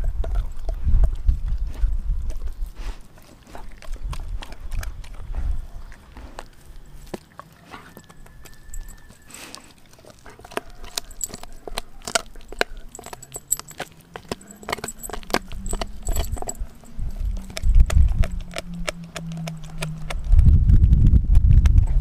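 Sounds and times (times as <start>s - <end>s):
dog gnawing frozen bone: 0.0s - 20.4s
low hum: 10.8s - 22.0s
low rumbling: 11.0s - 22.0s.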